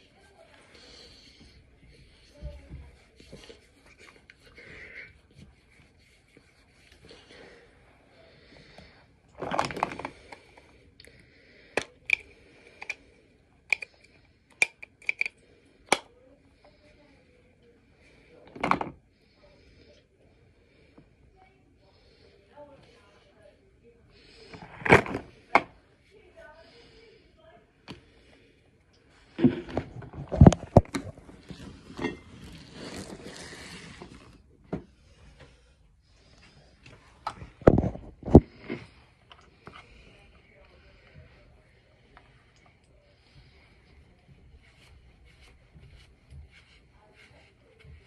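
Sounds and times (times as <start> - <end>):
rustling: 29.3 - 39.0.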